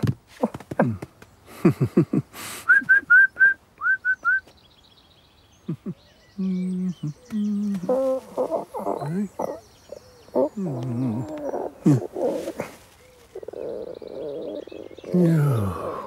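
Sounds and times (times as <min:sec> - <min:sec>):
low hummed notes: 0:05.6 - 0:16.0
voiced grunts: 0:05.7 - 0:16.0.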